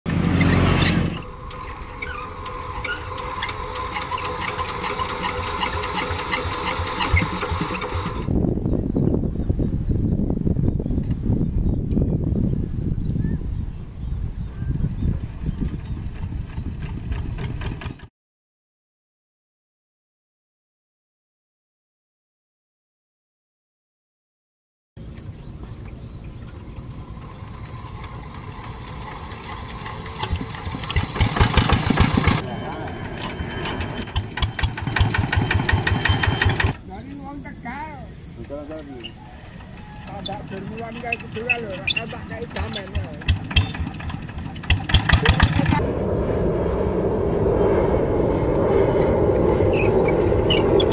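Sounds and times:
diesel engine knocking: 2.4s - 8.3s, 27.6s - 32.4s, 34.1s - 36.8s, 39.4s - 45.8s.

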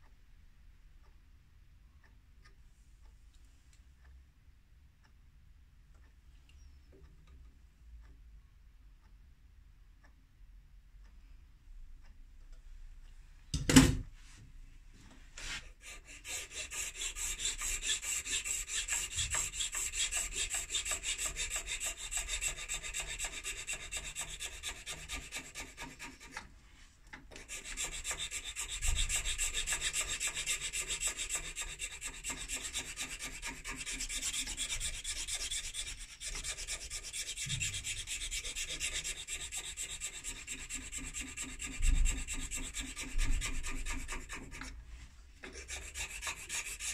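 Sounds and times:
hand file rasping on metal: 15.4s - 26.5s, 27.3s - 44.8s, 45.4s - 46.9s.

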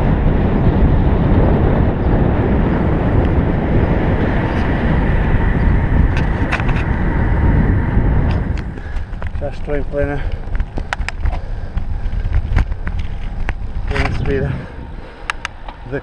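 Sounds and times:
bicycle tyres on tarmac: 0.0s - 16.0s
wind buffeting microphone: 0.0s - 16.0s.

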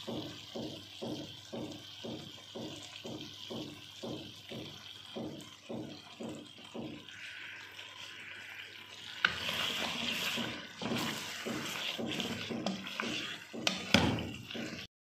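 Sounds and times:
food sizzling in a pan: 0.0s - 14.9s
wooden spoon scraping a pan: 6.0s - 14.9s.

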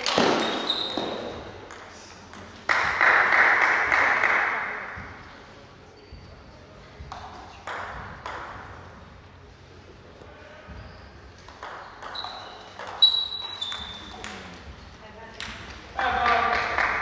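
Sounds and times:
short high squeak: 12.1s - 14.1s.

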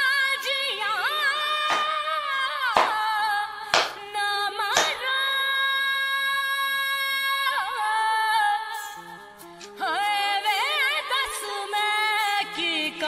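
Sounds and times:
woman singing: 0.0s - 9.0s, 9.8s - 13.0s
sharp hand claps: 1.7s - 2.0s, 2.8s - 3.1s, 3.8s - 4.1s, 4.8s - 5.0s.

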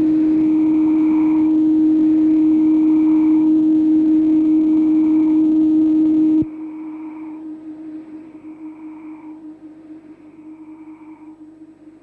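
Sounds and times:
faint synth tones: 0.0s - 12.0s
low synthesizer drone: 0.0s - 12.0s.

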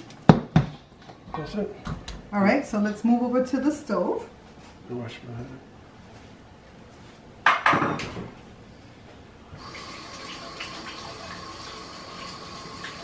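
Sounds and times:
kitchen tap running: 9.6s - 13.0s.

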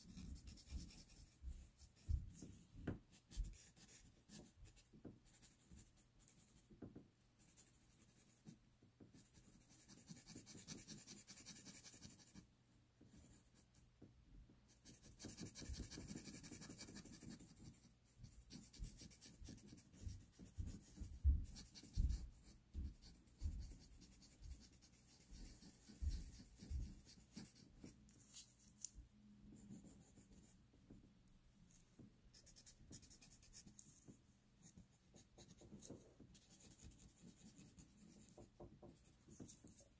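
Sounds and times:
pastel pencil scratching on paper: 0.0s - 13.8s, 14.7s - 28.9s, 29.5s - 30.6s, 32.3s - 39.9s.

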